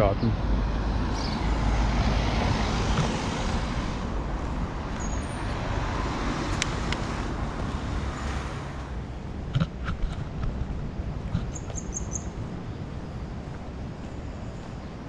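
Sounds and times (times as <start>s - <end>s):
cars driving past: 0.0s - 15.0s.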